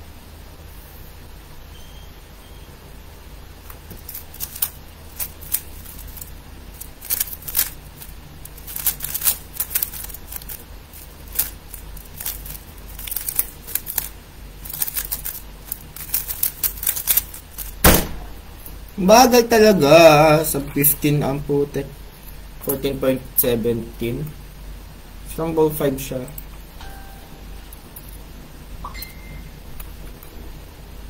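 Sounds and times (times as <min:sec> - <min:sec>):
puzzle cube plastic clicks: 0:03.7 - 0:17.8.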